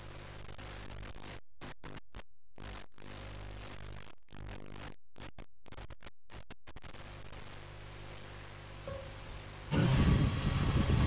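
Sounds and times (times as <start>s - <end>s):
low buzzing hum: 0.0s - 11.0s
electrical hiss: 6.8s - 11.0s.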